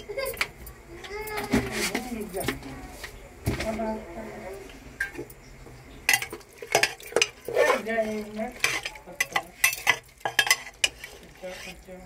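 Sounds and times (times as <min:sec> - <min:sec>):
metal spoon scraping pot: 0:06.1 - 0:12.0.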